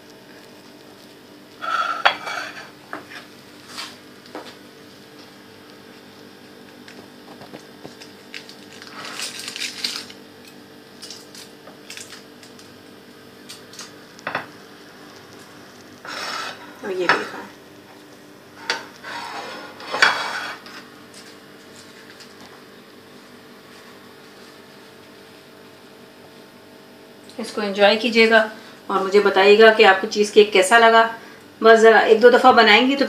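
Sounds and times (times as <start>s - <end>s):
faint steady hum: 0.0s - 33.0s
ceramic plate scraping on countertop: 1.6s - 3.9s, 16.0s - 17.3s, 18.6s - 20.8s.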